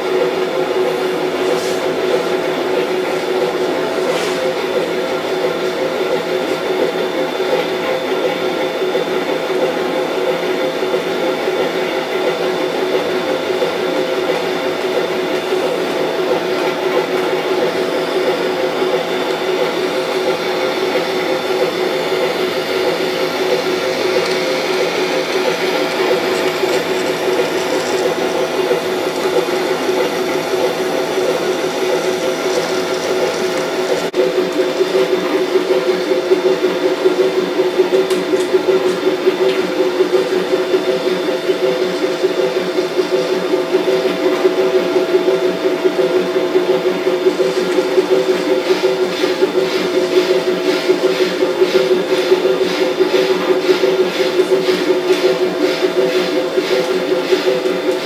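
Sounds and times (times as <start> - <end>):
model train motor whirring: 22.2 - 34.1.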